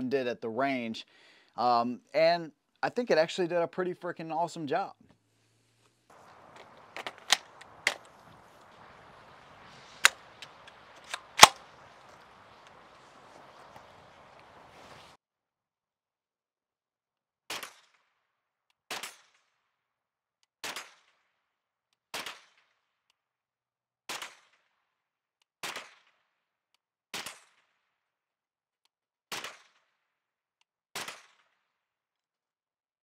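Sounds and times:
gunshots with echo: 6.2 - 13.4.

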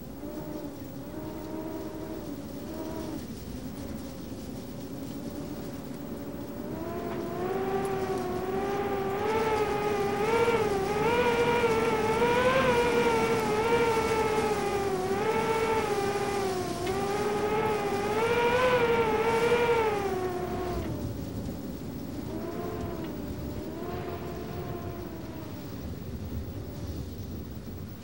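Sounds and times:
engine running at high revs: 0.1 - 25.9.

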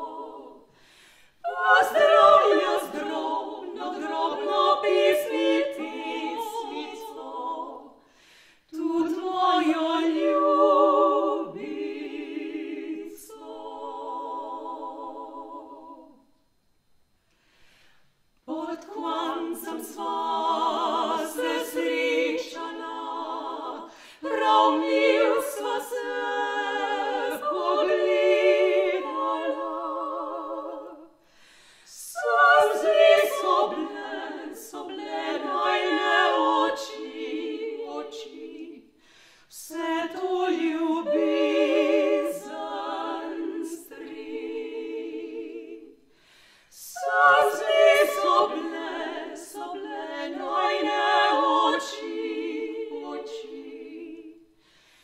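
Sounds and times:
women singing in harmony: 0.0 - 16.3, 18.4 - 31.2, 31.9 - 46.1, 46.7 - 54.6
singers breathing: 0.7 - 1.5, 8.0 - 8.7, 17.3 - 18.3, 23.9 - 24.3, 31.2 - 32.1, 38.9 - 39.6, 46.0 - 46.9, 54.5 - 55.0.

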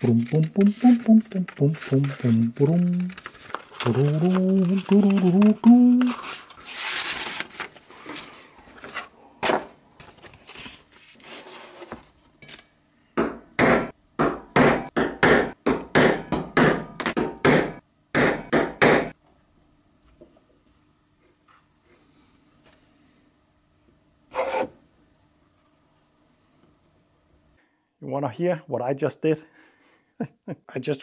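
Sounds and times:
scissors snipping paper: 0.0 - 6.2.

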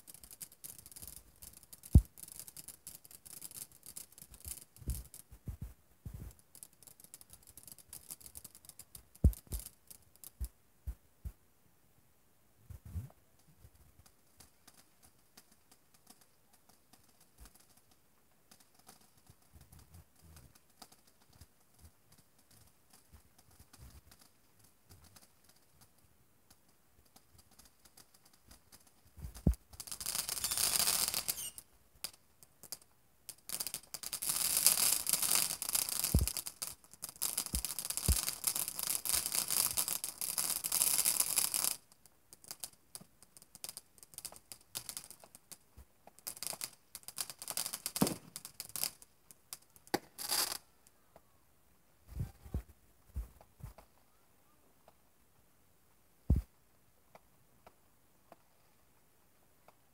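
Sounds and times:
fireworks hissing and crackling: 0.0 - 11.4, 12.7 - 51.0, 52.0 - 54.2, 56.3 - 56.6
sharp firework pops: 0.0 - 11.4, 26.5 - 50.6, 56.3 - 56.5.

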